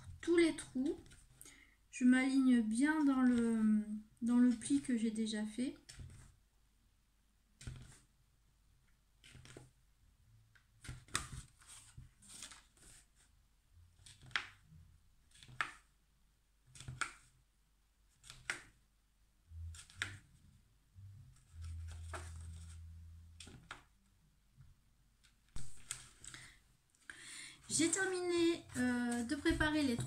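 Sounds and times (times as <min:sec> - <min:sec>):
paper rustling: 0:10.8 - 0:13.3, 0:21.4 - 0:22.8, 0:25.2 - 0:26.6, 0:27.6 - 0:30.0
low hum: 0:19.4 - 0:23.4.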